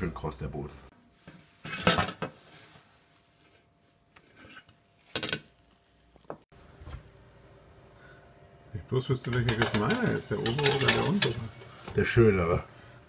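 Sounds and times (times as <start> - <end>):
metal baking tray knocking: 9.3 - 11.4.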